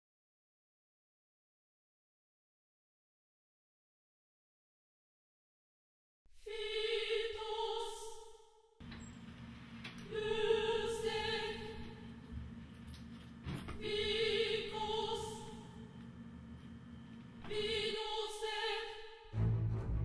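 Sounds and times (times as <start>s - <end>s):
operatic singing: 6.4s - 8.4s, 10.0s - 12.1s, 13.8s - 16.0s, 17.4s - 20.0s.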